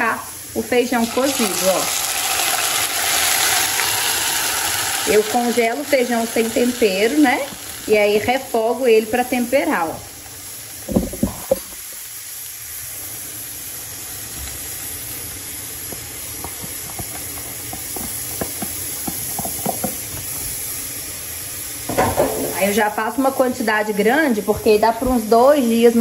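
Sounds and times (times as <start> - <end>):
beans sizzling in a frying pan: 0.0 - 26.0
sharp knocks: 10.9 - 11.7.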